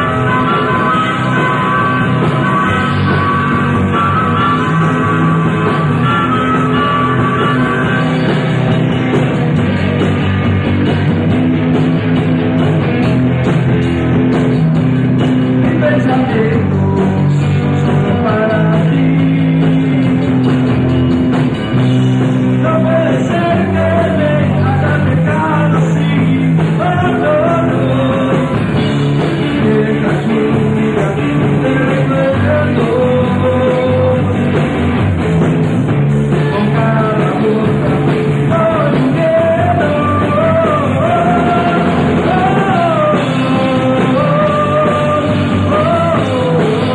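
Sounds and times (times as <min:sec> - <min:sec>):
rock band playing live: 0:00.0 - 0:46.9
person singing: 0:15.6 - 0:20.6, 0:22.6 - 0:34.4, 0:36.3 - 0:46.9.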